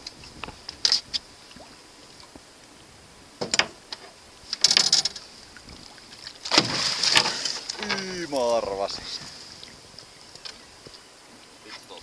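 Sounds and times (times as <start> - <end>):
fish splashing in water: 5.9 - 8.3.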